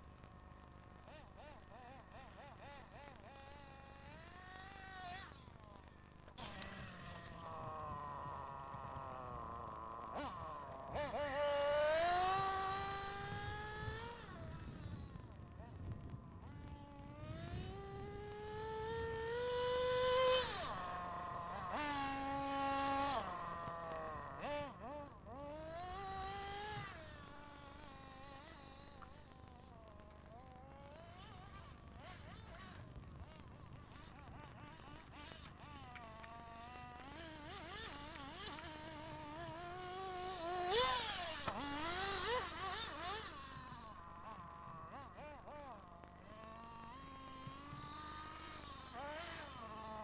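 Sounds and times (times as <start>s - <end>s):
model buggy engine whine: 0.0s - 50.0s.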